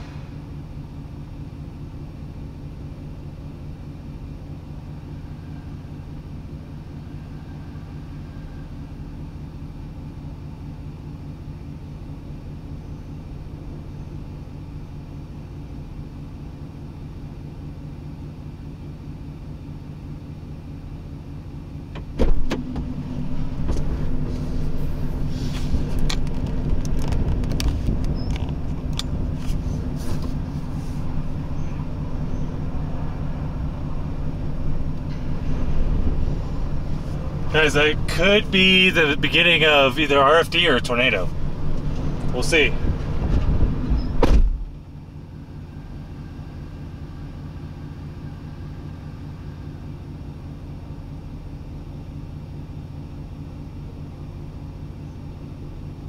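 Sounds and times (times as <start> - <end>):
vehicle engine idling: 0.0 - 56.0
sudden thump: 22.0 - 23.0, 43.2 - 44.7
wind buffeting microphone: 42.8 - 44.2.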